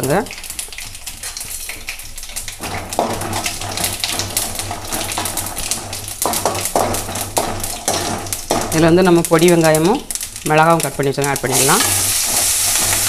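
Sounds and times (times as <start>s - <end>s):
spices popping in hot oil: 0.0s - 13.0s
ladle scraping a metal pan: 2.6s - 8.7s, 11.6s - 13.0s.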